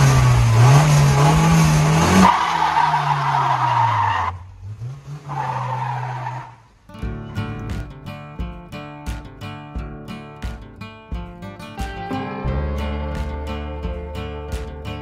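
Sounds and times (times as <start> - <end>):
car engine revving hard: 0.0 - 6.8
plucked guitar music: 6.9 - 15.0.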